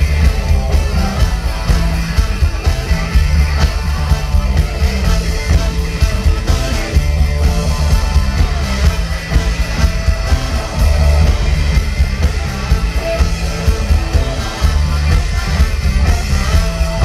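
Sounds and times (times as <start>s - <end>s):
electric guitars: 0.0s - 17.0s
repeating bass line: 0.0s - 17.0s.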